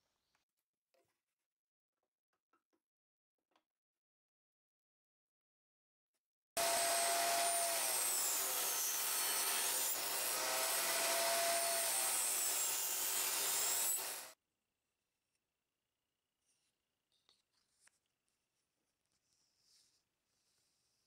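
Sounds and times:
table saw ripping wood: 0:06.6 - 0:14.4.

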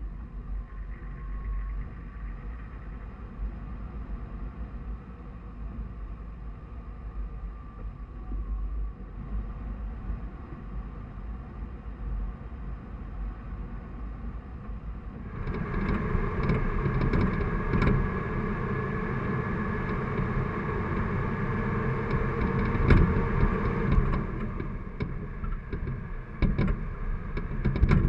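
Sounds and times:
drivetrain whine: 0:00.0 - 0:28.0
diesel truck engine rumbling: 0:15.0 - 0:28.0
knocks and rattles: 0:22.1 - 0:28.0.

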